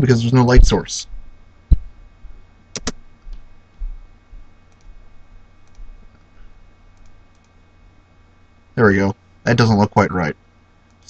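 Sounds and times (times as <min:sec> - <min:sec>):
dull low knocks: 0:01.7 - 0:02.0.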